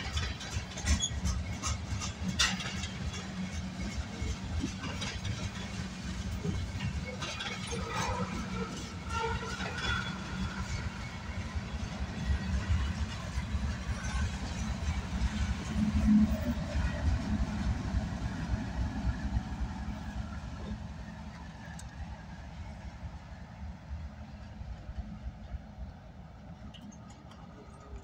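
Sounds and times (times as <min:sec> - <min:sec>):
diesel locomotive: 0:00.0 - 0:28.0
train wheels rumbling on rail: 0:00.0 - 0:28.0.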